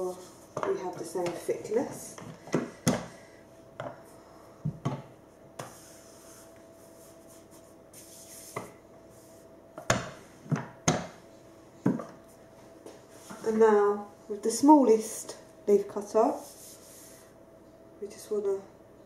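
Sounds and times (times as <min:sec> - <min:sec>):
soft rubbing: 0:05.6 - 0:09.5, 0:16.2 - 0:17.4.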